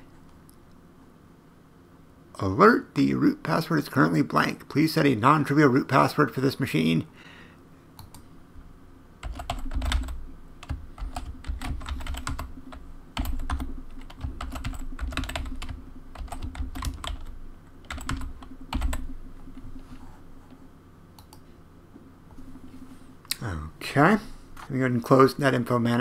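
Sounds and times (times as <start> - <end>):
keyboard typing: 9.2 - 19.9, 21.2 - 21.4.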